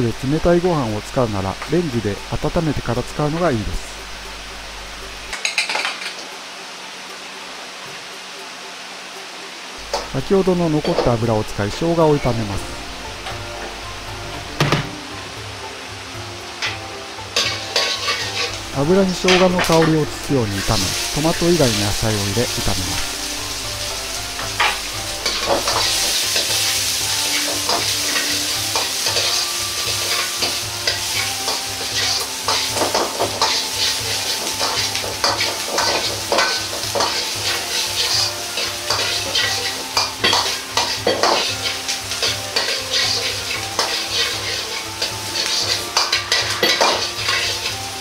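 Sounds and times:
vegetables sizzling in oil: 0.0 - 48.0
ladle scraping a wok: 16.6 - 19.9, 22.5 - 48.0.

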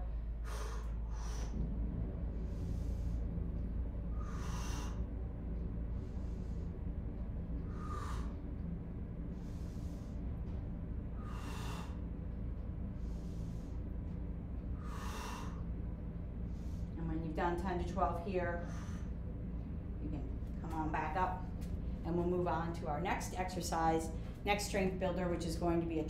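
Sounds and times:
woman breathing: 0.0 - 17.0, 18.5 - 20.0
low hum: 0.0 - 26.0.

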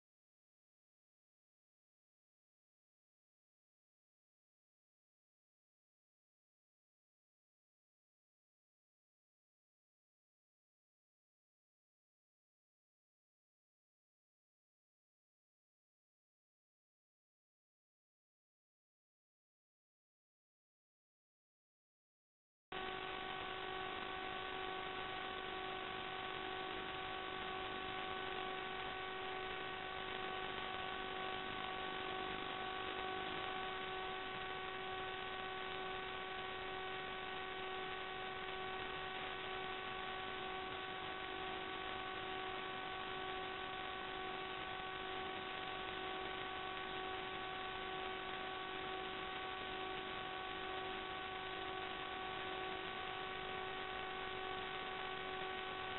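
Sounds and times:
electronic hum and hiss: 22.7 - 55.9.

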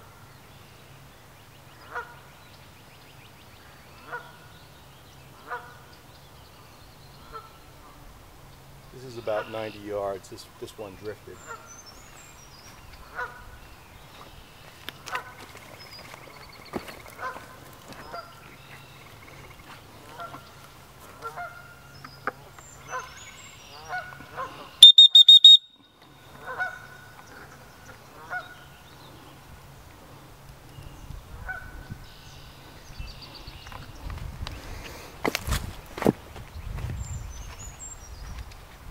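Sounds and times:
geese honking: 13.1 - 13.5, 17.1 - 18.4, 20.1 - 25.6, 26.3 - 27.0
shrill pulsed high tone: 24.8 - 25.9.

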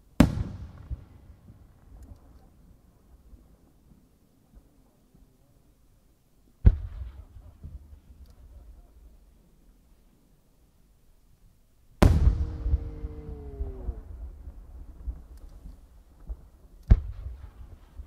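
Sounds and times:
firework bang: 12.0 - 14.6
rumbling echo: 12.0 - 15.3.

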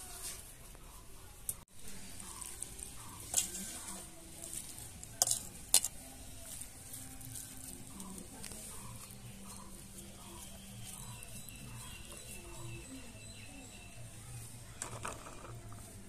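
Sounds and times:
spoon clinking bowls: 2.4 - 6.0.

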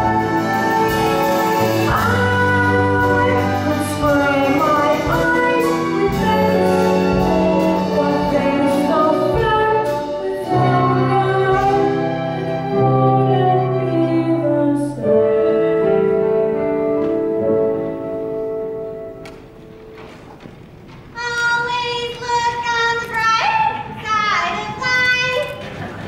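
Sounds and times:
instrumental accompaniment: 0.0 - 21.6
boy singing: 1.9 - 15.0.

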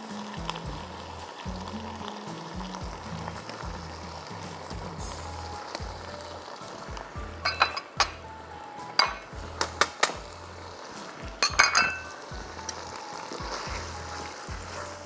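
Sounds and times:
soft background music: 0.0 - 15.0
utensil knocking on pan: 9.0 - 10.4, 11.2 - 12.8.

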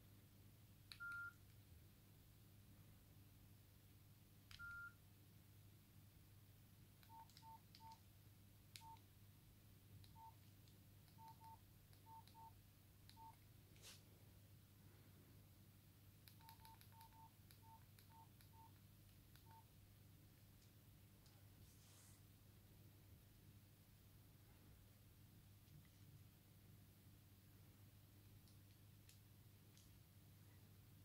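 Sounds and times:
phone keypad beeps: 0.9 - 1.4, 4.5 - 5.0, 7.0 - 8.0, 8.8 - 9.0, 10.1 - 10.4, 11.1 - 13.4, 16.3 - 18.8, 19.4 - 19.7
key clicks: 16.3 - 18.7.

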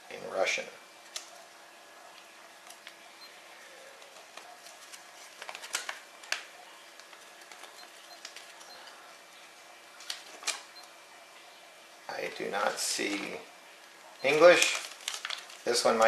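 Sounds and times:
paper rustling and crinkling: 4.0 - 8.7, 10.0 - 10.7, 14.4 - 16.0.

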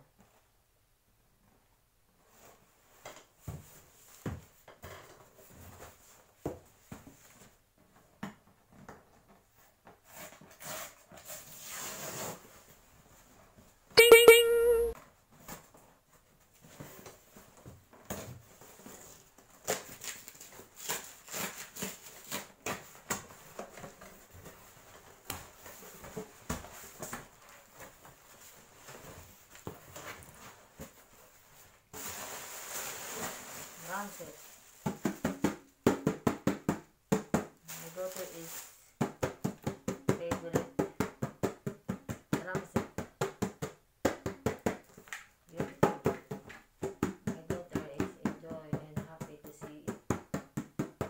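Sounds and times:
high-pitched yelp: 14.0 - 15.0.

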